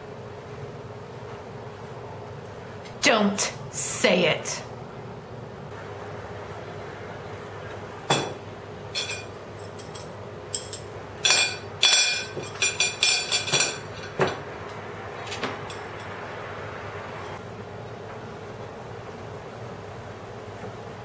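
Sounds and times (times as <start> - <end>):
utensils clinking on ceramic plate: 9.0 - 14.4, 15.4 - 16.2.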